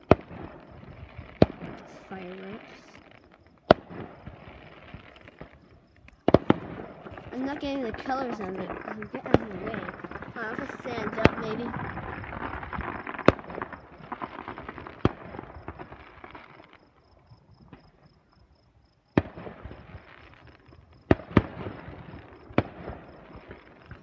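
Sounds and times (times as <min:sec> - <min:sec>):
fireworks booming: 0:00.0 - 0:18.2, 0:19.1 - 0:24.0
fireworks crackling and hissing: 0:00.0 - 0:24.0.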